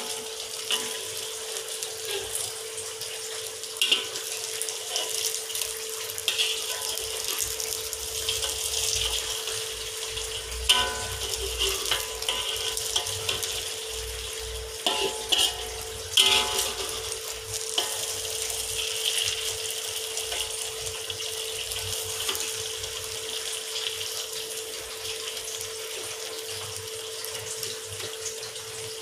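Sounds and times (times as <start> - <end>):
metal spatula scraping a wok: 0.0 - 3.2, 3.8 - 21.0
omelette sizzling in hot oil: 0.0 - 29.0.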